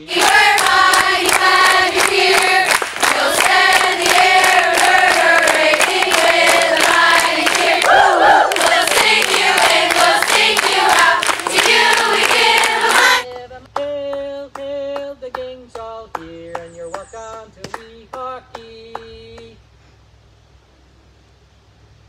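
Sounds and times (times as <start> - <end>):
group of voices singing: 0.0 - 15.5
rhythmic hand clapping: 0.0 - 19.6.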